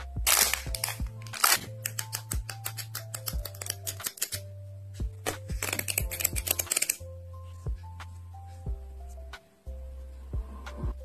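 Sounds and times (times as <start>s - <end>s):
background music: 0.0s - 11.0s
paper pad sheets flicked: 0.2s - 4.4s.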